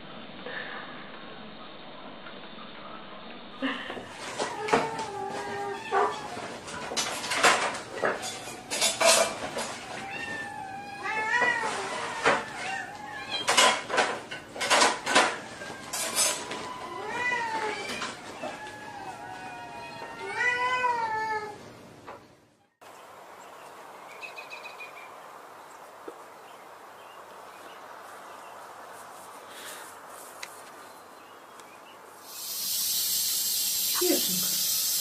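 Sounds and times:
dishes clattering: 4.1 - 10.5, 11.2 - 16.7
cat meowing: 4.2 - 6.6, 9.8 - 13.6, 15.4 - 21.6.

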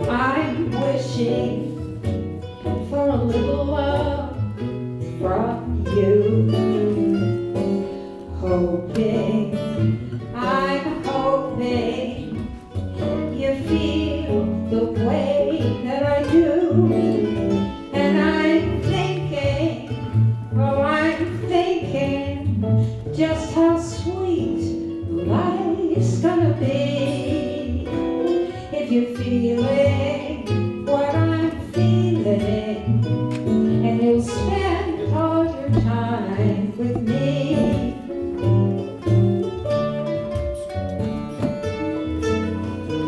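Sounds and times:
acoustic guitars strumming: 0.0 - 43.0
mandolin strumming: 0.0 - 43.0
person singing: 5.2 - 7.5, 8.3 - 19.9, 23.2 - 38.4.

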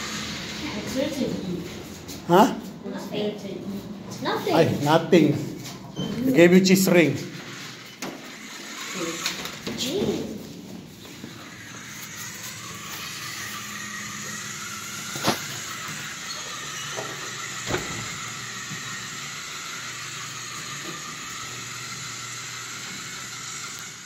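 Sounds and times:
toy car motor whirring: 0.0 - 2.0, 6.8 - 24.0.

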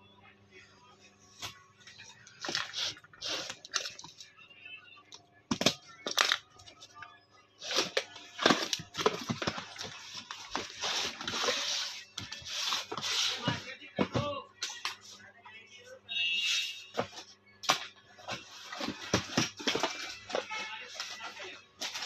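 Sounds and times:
cardboard rustling and scraping: 7.6 - 14.3, 18.2 - 22.0.

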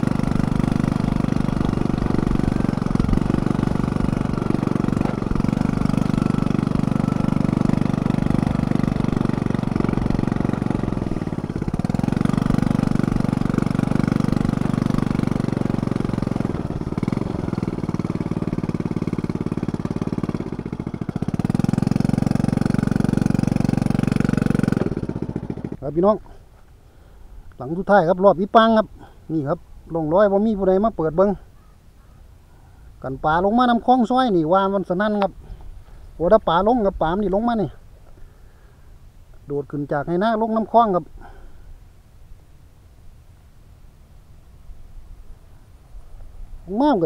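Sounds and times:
motorcycle engine running: 0.0 - 32.2.

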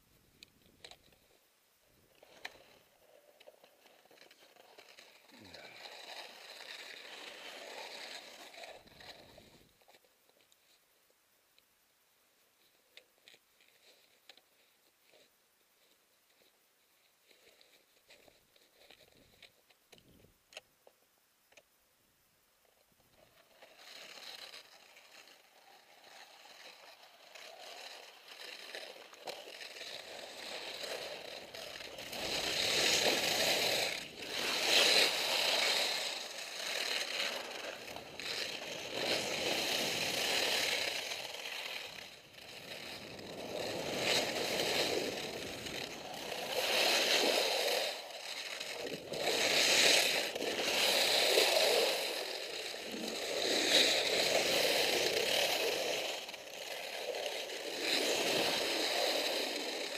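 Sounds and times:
skis scraping over snow: 2.1 - 10.0, 23.2 - 59.9.

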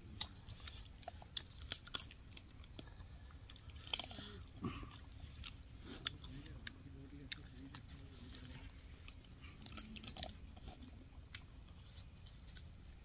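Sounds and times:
sharp crunchy clicks: 0.0 - 4.2
person chewing fried chicken: 0.0 - 13.0.

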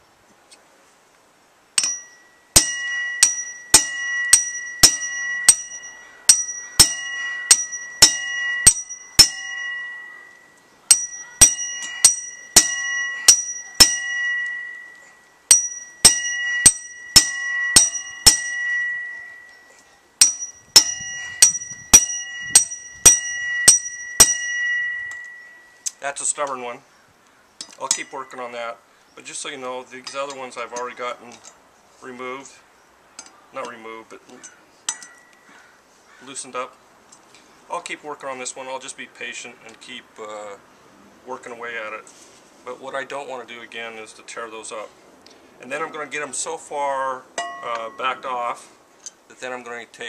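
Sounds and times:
hammer striking metal impact driver: 1.8 - 9.8, 10.9 - 14.8, 15.5 - 19.2, 20.2 - 25.3.

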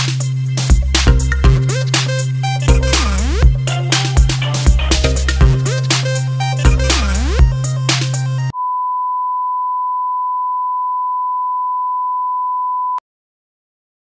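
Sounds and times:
music with heavy beat: 0.0 - 8.5
high pure-tone beep: 8.5 - 13.0.

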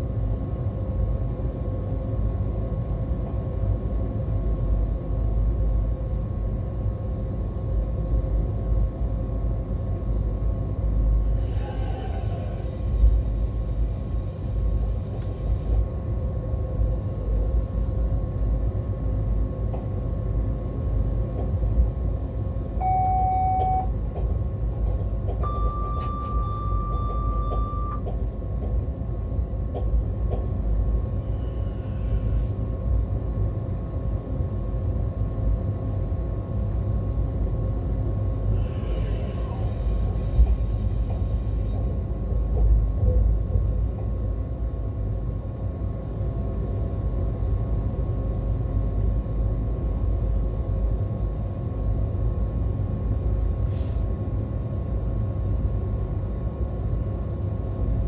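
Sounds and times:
locomotive running gear rumble: 10.0 - 33.8, 37.7 - 54.8
short electronic beeps: 25.4 - 28.0.

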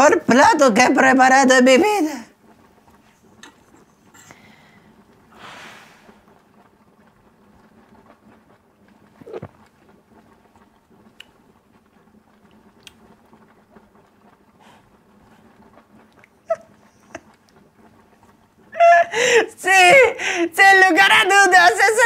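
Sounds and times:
man chewing food: 2.4 - 18.8
short hiss: 5.3 - 6.2.

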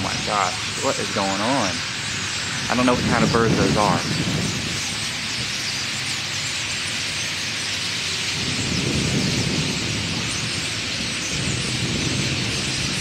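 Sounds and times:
flock of blackbirds calling: 0.0 - 13.0.

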